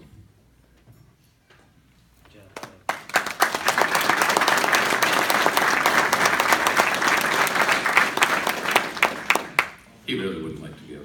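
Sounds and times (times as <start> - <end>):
audience applauding: 2.5 - 10.0.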